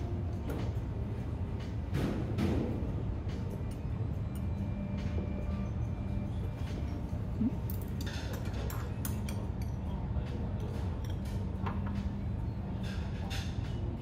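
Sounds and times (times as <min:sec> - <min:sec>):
steady low background hum: 0:00.0 - 0:14.0
dishes and utensils clinking: 0:06.5 - 0:14.0.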